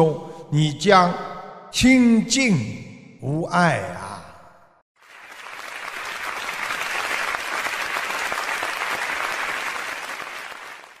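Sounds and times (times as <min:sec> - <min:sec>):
audience applauding: 0:05.0 - 0:11.0.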